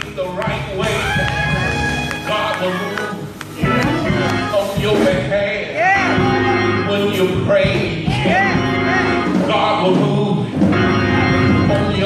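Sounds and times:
person singing church music: 0:00.0 - 0:12.0
steady held chords: 0:00.0 - 0:12.0.

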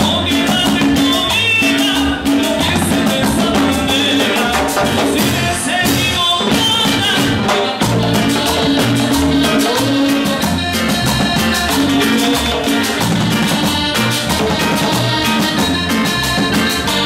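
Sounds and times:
electric upright bass: 0:00.0 - 0:17.0
keyboard: 0:00.0 - 0:17.0
percussion struck with sticks: 0:00.0 - 0:17.0.

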